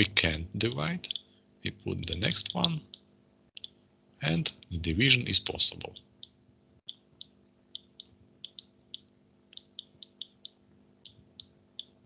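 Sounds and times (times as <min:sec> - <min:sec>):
faint steady hum: 0:00.0 - 0:12.0
stylus clicking on screen: 0:02.0 - 0:03.8, 0:06.2 - 0:12.0.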